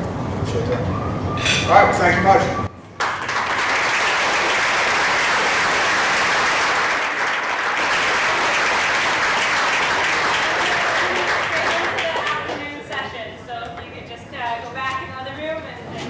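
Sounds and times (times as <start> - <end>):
audience applauding: 3.0 - 12.7.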